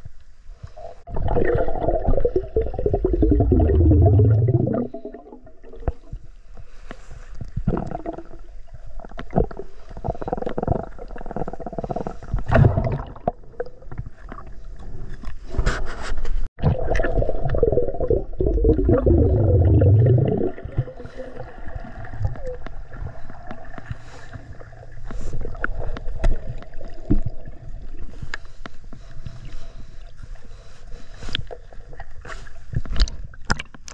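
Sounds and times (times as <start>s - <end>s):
underwater gurgling bubbles: 0.8s - 15.4s, 16.6s - 29.1s.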